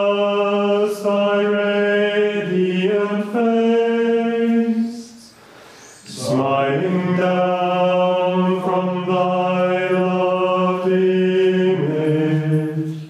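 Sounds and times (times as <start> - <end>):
male voices chanting plainchant: 6.0 - 13.0.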